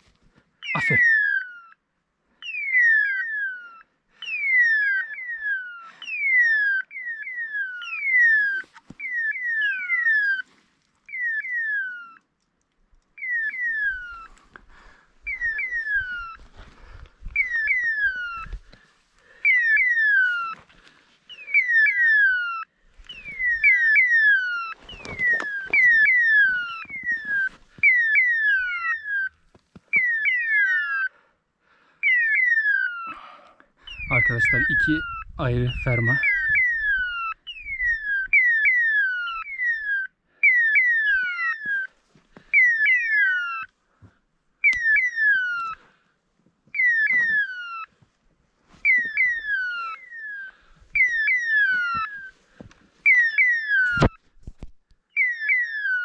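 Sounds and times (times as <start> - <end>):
footsteps on rocky ground: 16.3 - 17.5, 24.8 - 27.9, 50.7 - 53.1.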